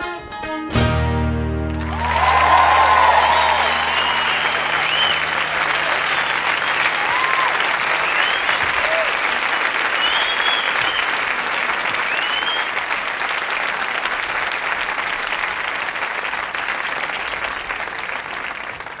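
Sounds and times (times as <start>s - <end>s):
crowd applauding and cheering: 1.3s - 19.0s
sharp whistles: 2.6s - 9.0s, 9.9s - 11.3s, 12.0s - 12.8s.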